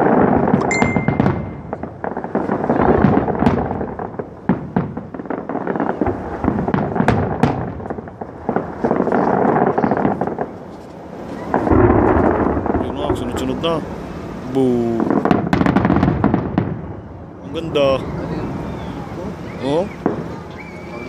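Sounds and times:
firework shells bursting: 0.0 - 10.6
continuous rumble: 0.0 - 21.0.

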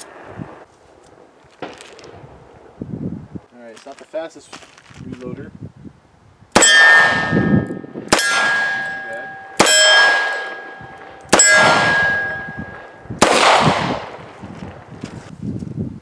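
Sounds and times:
steel target clanging: 6.6 - 13.1.

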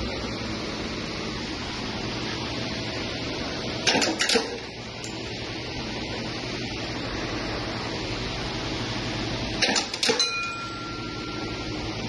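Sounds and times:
steady background hum: 0.0 - 12.0
sharp metallic clinks: 9.7 - 11.7.

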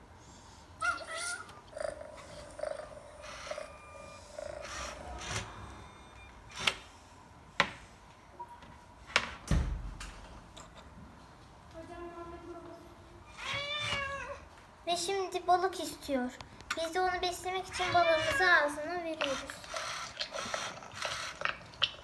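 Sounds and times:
cat purring: 1.7 - 5.0
cat meow: 13.3 - 14.4, 17.7 - 18.6.

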